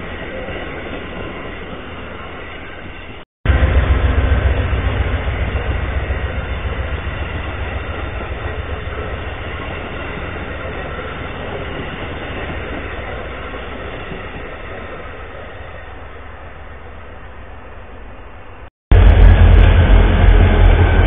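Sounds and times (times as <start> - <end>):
train wheels rumbling on rail: 0.0 - 21.0.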